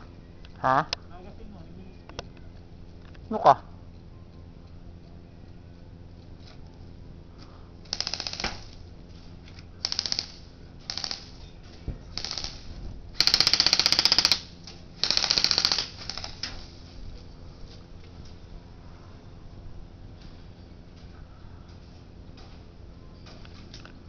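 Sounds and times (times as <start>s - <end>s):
airsoft rifles firing bursts: 7.9s - 8.8s, 9.8s - 11.4s, 12.2s - 16.6s.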